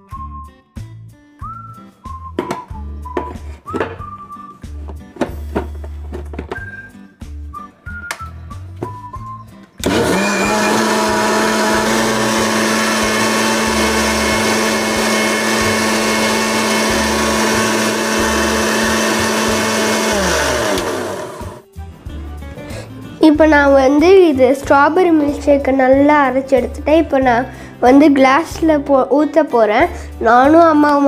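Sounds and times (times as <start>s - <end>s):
mixer grinder motor running: 9.8s - 21.7s.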